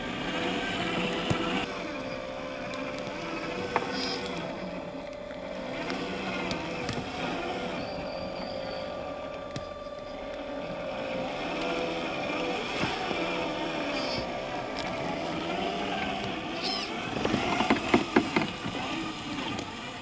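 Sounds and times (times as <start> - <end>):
electric motor and gears whining: 0.0 - 20.0.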